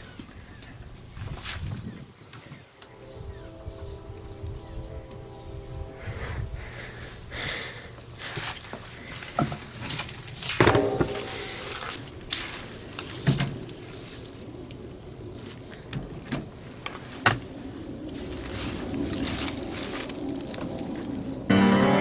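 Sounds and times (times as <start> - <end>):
equipment knocking and clattering: 10.6 - 11.4.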